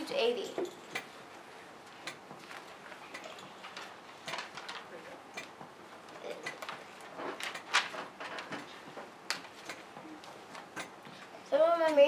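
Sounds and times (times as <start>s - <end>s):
paper rustling and crinkling: 2.4s - 5.2s, 6.6s - 9.6s.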